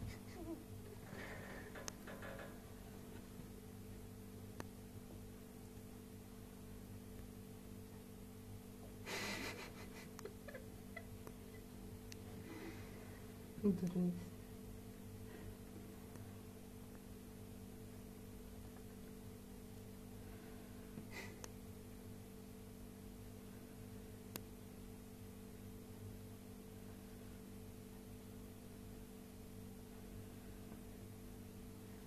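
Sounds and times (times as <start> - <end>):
steady low hum: 0.0 - 32.0
faint rustles: 0.9 - 3.5.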